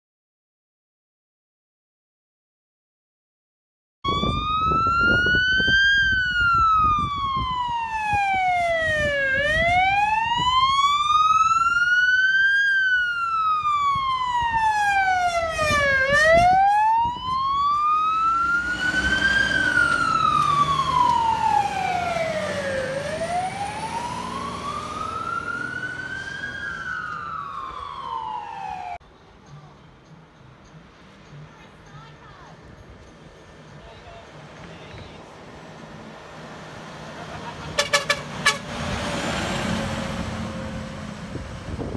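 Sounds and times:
fire truck siren wailing: 4.0s - 29.0s, 36.7s - 41.9s
truck engine and tyres rumbling: 4.1s - 41.9s.

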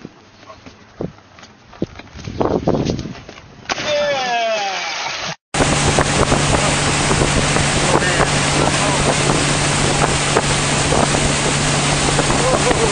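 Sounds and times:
wind buffeting microphone: 0.9s - 3.7s, 5.6s - 12.9s
wake rushing: 4.7s - 12.9s
motorboat engine humming: 5.6s - 12.9s.

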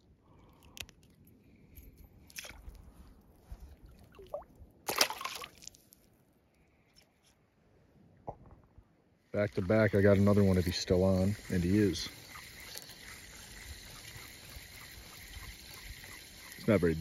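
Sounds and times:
fish splashing into water: 4.0s - 5.8s.

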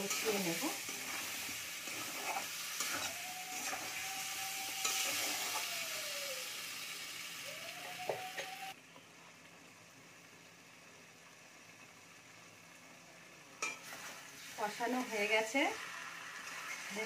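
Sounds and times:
potatoes sizzling in pan: 0.0s - 17.0s
thin squealing tone: 2.2s - 5.9s.

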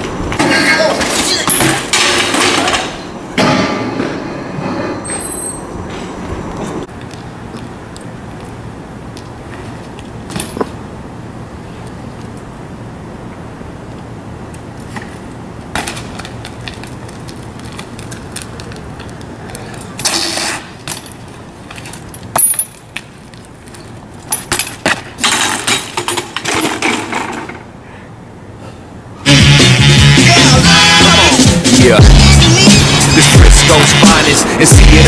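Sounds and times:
bike clicking and rattling: 0.0s - 3.5s, 9.5s - 10.8s, 14.5s - 27.7s
bike clattering and scraping: 0.0s - 7.2s, 9.4s - 10.9s, 14.6s - 27.8s
loud music: 29.3s - 35.0s.

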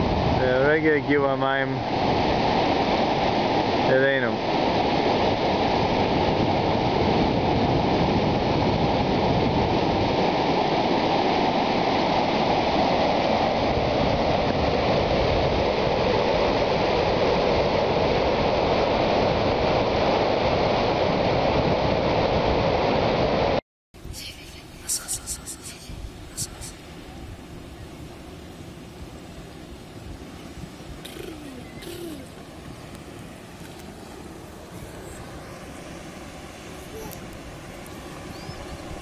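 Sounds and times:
flood water rushing: 24.7s - 39.0s.

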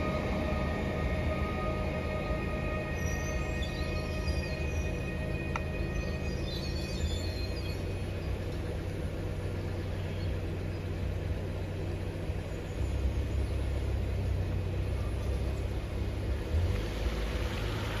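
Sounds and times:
car engine idling: 0.0s - 18.0s
tyre hiss on wet road: 16.5s - 18.0s.

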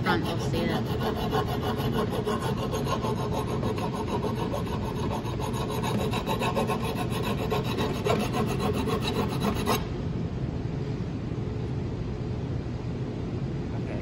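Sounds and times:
metal rasping on a file: 0.0s - 9.8s.

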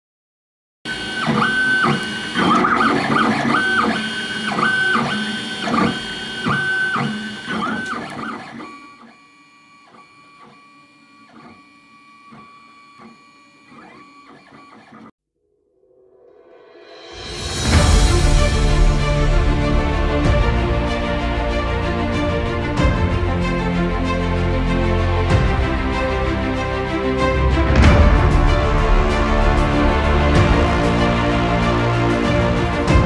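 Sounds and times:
printer stepper motors whining: 0.9s - 15.1s.

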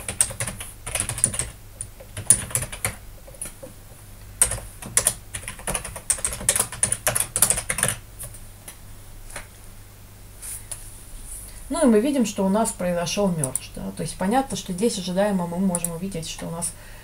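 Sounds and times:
computer keyboard typing: 0.0s - 3.6s, 4.4s - 8.0s.

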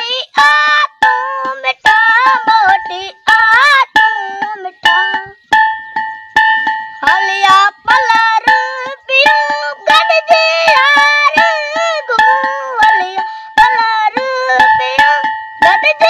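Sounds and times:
high singing voice: 0.0s - 16.0s
steady beat of strokes: 0.0s - 16.0s.

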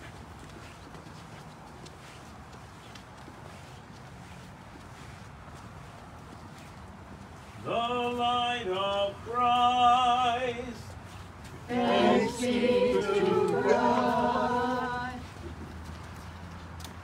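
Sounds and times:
group of voices chanting: 11.7s - 15.2s
solo voice chanting: 11.7s - 15.2s.

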